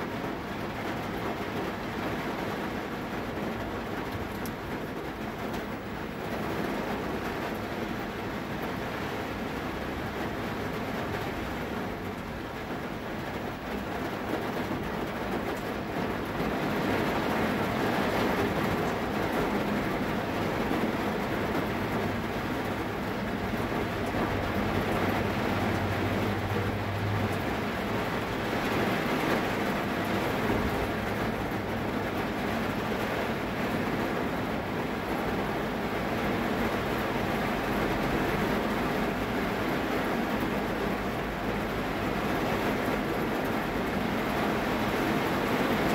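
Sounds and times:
heavy rain on a vehicle: 0.0 - 45.9.

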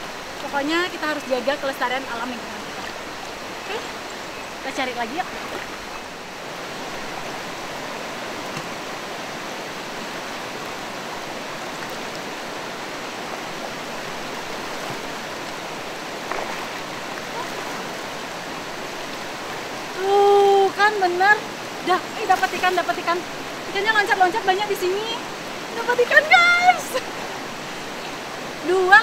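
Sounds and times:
river rushing over rocks: 0.0 - 29.0.

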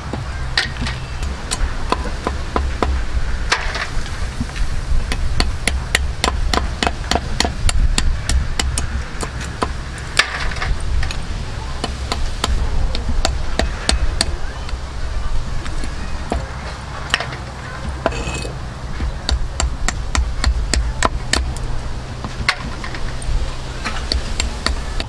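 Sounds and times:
cleaver chopping on wooden block: 5.1 - 10.6, 17.1 - 21.6.

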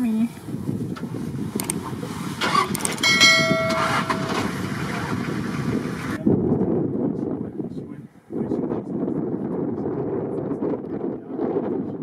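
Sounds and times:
sharp clicks: 1.5 - 1.8, 2.6 - 3.1
bell-like chime: 3.0 - 4.6.

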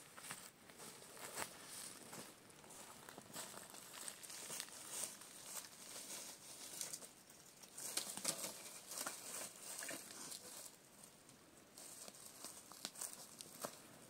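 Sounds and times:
leaf litter crunching underfoot: 0.0 - 10.8, 11.8 - 13.9
dry sticks knocking and crackling: 6.6 - 10.5, 12.0 - 13.8.

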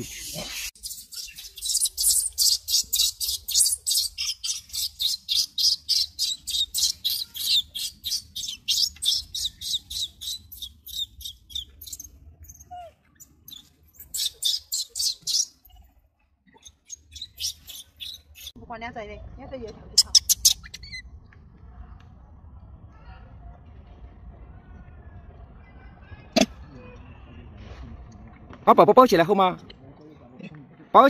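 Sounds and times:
rapid high-pitched chirping: 0.0 - 15.8, 16.5 - 18.6.

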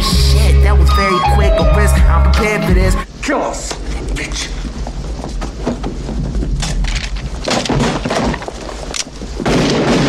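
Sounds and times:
hip-hop beat: 0.0 - 3.0
glass and wood breaking: 7.3 - 8.8.

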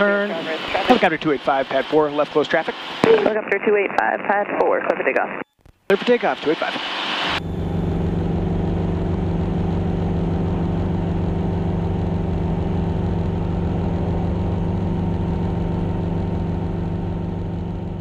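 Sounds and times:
helicopter engine and rotor drone: 0.0 - 3.5, 6.0 - 18.0.

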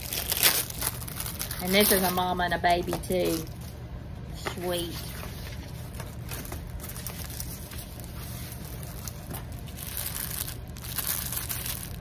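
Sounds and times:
plastic bags and paper rustling: 0.0 - 3.8, 4.4 - 12.0.

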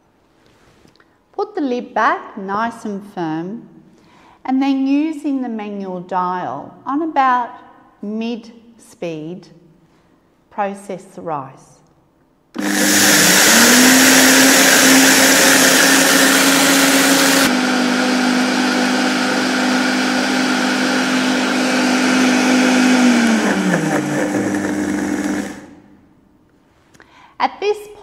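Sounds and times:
blender motor whine: 12.6 - 25.9.

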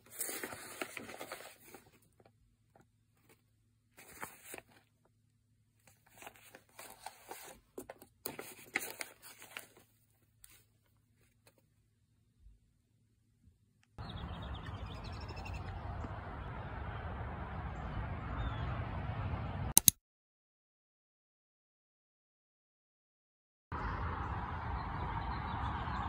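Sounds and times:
paper rustling and crinkling: 0.0 - 3.4, 4.0 - 5.0, 5.8 - 11.7.

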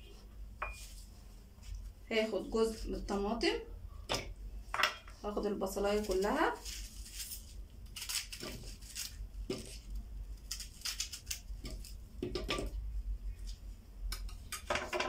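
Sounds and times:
knife cutting onion: 5.8 - 12.8.

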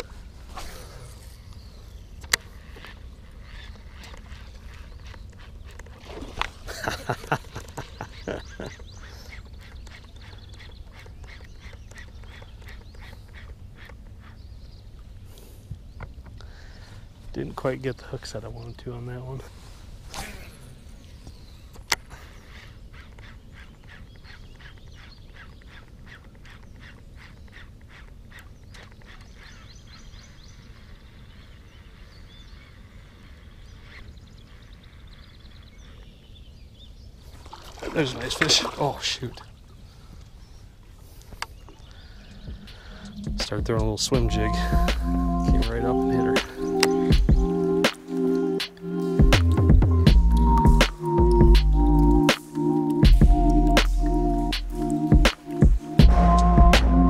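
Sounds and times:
small birds chirping: 0.0 - 56.7
fishing rod swinging clatter: 2.2 - 14.0
low rumble: 42.2 - 46.1, 53.0 - 55.3, 56.0 - 57.0.

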